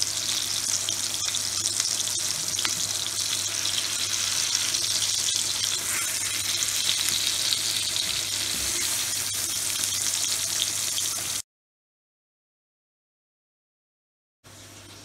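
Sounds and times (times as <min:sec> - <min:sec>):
patties sizzling in oil: 0:00.0 - 0:11.4
spatula scraping griddle: 0:03.6 - 0:11.3.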